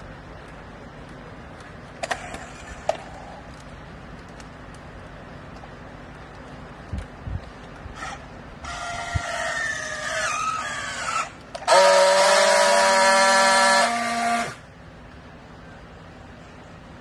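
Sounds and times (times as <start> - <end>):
strapping tool motor whine: 7.9 - 14.6.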